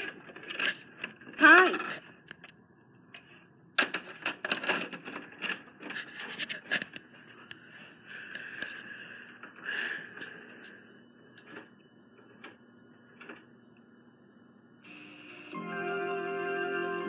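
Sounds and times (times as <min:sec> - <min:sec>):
handling noise scratching and clicking: 0:03.8 - 0:07.1.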